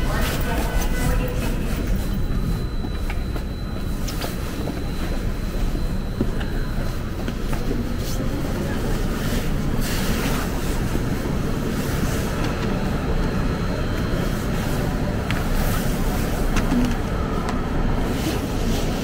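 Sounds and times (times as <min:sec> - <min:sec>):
subway train wheels rumbling: 0:00.0 - 0:19.0.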